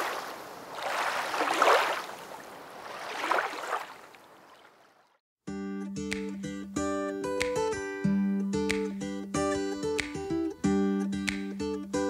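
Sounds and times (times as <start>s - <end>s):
water lapping at shore: 0.0s - 5.2s.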